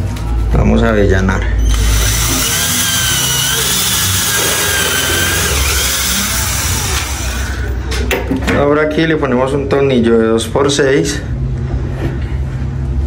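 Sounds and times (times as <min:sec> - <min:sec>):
cordless drill whining: 0:01.6 - 0:07.7.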